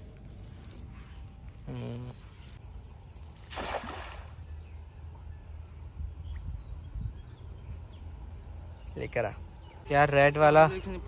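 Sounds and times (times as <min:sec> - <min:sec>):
net splashing on water: 0:03.4 - 0:04.4.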